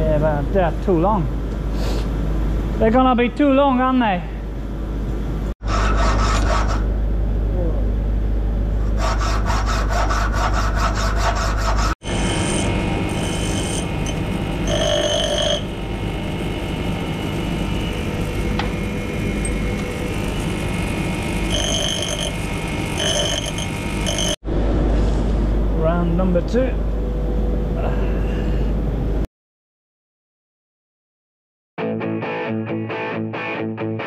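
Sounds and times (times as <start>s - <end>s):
metal grinding on wheel: 12.0s - 16.7s, 17.3s - 24.4s
bench grinder running: 12.0s - 24.4s.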